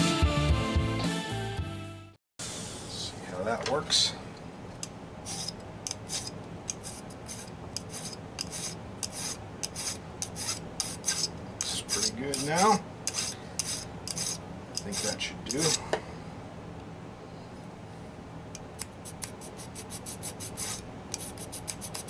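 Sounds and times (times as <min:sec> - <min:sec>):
hand file rasping on metal: 0:05.3 - 0:15.8, 0:19.2 - 0:22.0.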